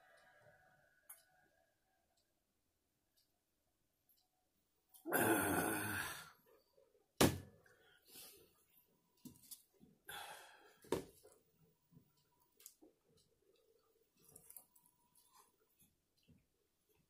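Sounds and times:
sharp thunk: 7.2s - 7.5s.

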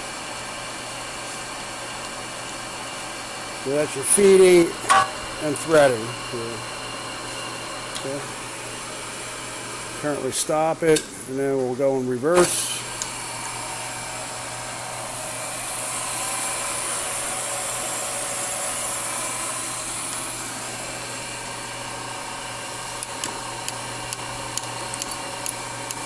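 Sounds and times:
lathe whining: 12.6s - 26.0s.

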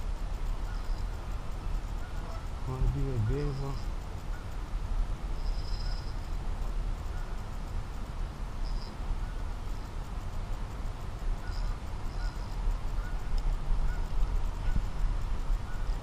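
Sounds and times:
bird calls: 0.6s - 4.6s, 5.4s - 6.3s, 11.4s - 15.0s, 15.6s - 16.0s
wind on microphone: 12.2s - 16.0s.

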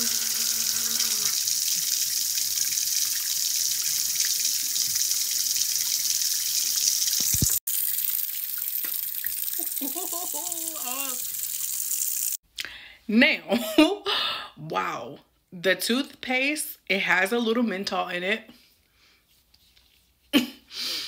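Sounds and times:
tap water running into sink: 0.0s - 12.4s.

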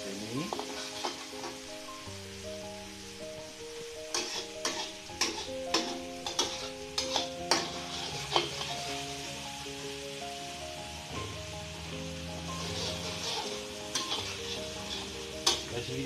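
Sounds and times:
chilies sizzling in hot oil: 0.0s - 16.0s
light background melody: 0.0s - 16.0s
metal spatula scraping wok: 0.5s - 1.7s, 4.0s - 9.2s, 12.2s - 16.0s.

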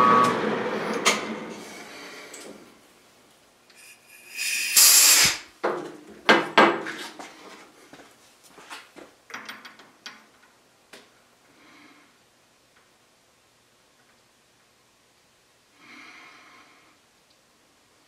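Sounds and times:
metal scraping: 3.7s - 5.4s.

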